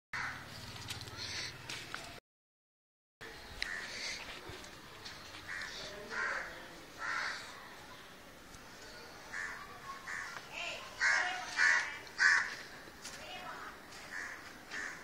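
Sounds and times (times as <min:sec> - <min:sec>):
crows cawing: 0:00.2 - 0:00.5, 0:01.1 - 0:01.6, 0:03.6 - 0:04.3, 0:05.4 - 0:07.6, 0:09.3 - 0:10.4, 0:11.0 - 0:12.7, 0:14.0 - 0:15.0.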